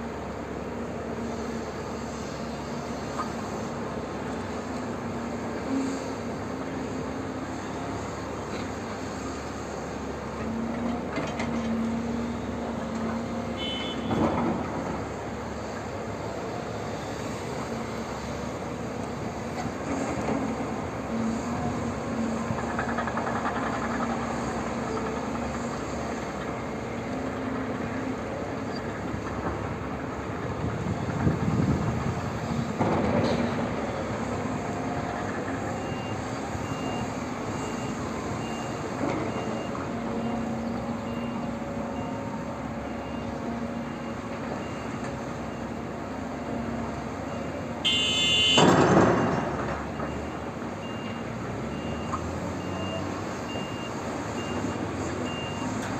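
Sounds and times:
excavator diesel engine running: 0:00.0 - 0:55.9
reversing alarm beeping: 0:35.7 - 0:46.0, 0:47.2 - 0:55.8.

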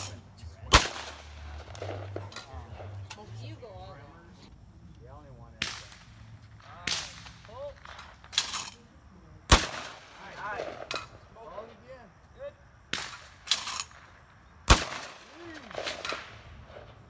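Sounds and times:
faint voices: 0:00.0 - 0:12.7
shotgun bangs: 0:00.7 - 0:03.0, 0:09.5 - 0:11.1, 0:14.7 - 0:16.4.

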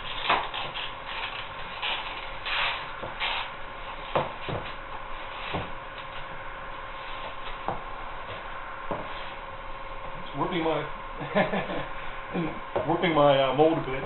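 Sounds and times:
faint steady hum: 0:00.0 - 0:14.0
hands rubbing foam sheet: 0:00.5 - 0:03.5.

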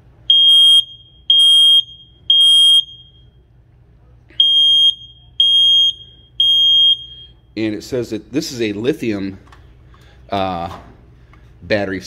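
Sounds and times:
smoke alarm beeps: 0:00.3 - 0:03.4, 0:04.4 - 0:07.5.

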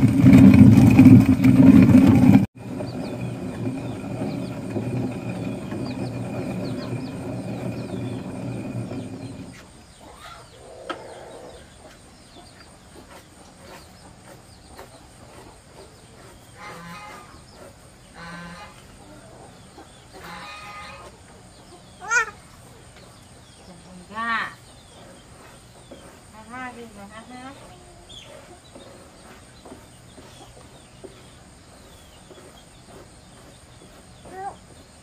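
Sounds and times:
motor humming: 0:00.0 - 0:09.6
chicks chirping: 0:05.3 - 0:17.8.

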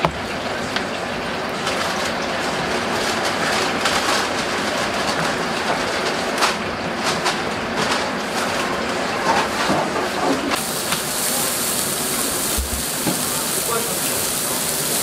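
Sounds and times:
griddle hissing and sizzling: 0:09.2 - 0:15.0.

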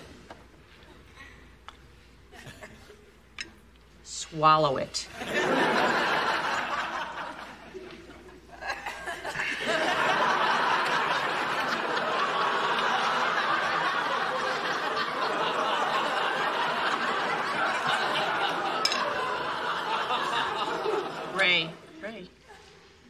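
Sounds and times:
studio audience laughing: 0:05.2 - 0:21.8.

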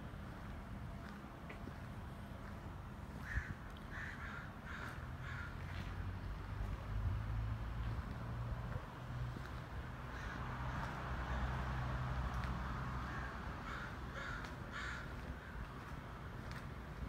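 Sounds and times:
bird cawing: 0:03.2 - 0:05.8, 0:10.1 - 0:10.5, 0:13.0 - 0:15.6.

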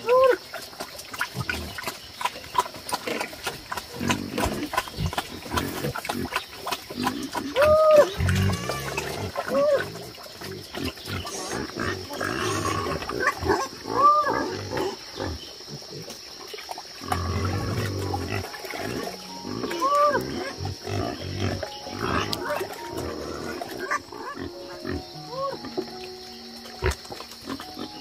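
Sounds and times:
pigs grunting: 0:00.0 - 0:26.0, 0:26.7 - 0:28.0
piglets squealing: 0:07.6 - 0:09.9, 0:11.2 - 0:14.8, 0:17.4 - 0:25.8.

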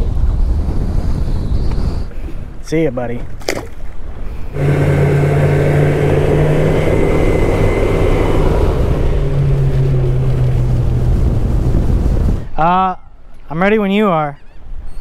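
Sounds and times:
wind and water rushing: 0:02.0 - 0:13.9
motorboat engine running: 0:04.5 - 0:12.5.

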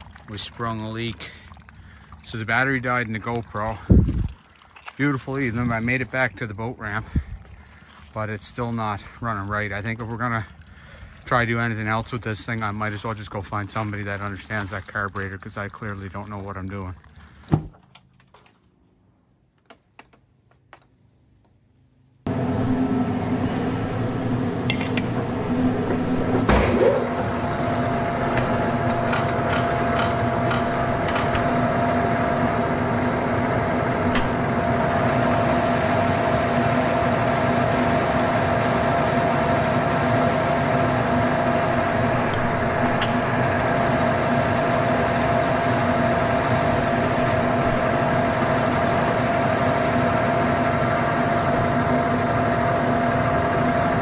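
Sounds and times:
lathe running with low hum: 0:22.3 - 0:54.0.

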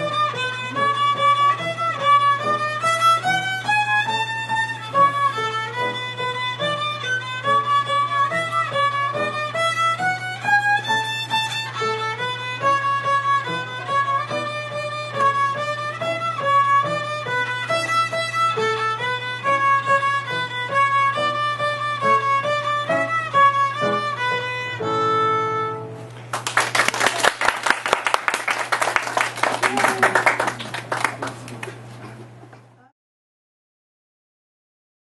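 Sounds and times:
child playing violin: 0:00.0 - 0:26.1
audience applause: 0:26.3 - 0:32.0.

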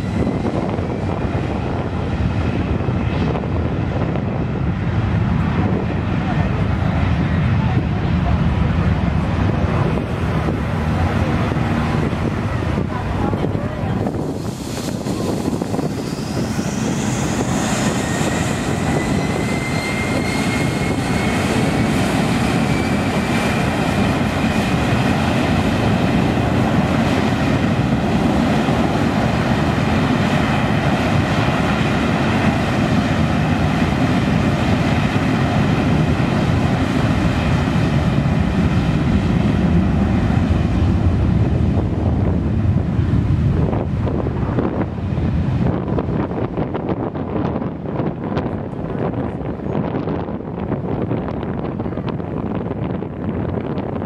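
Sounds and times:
jet engines spooling up: 0:09.2 - 0:46.7.

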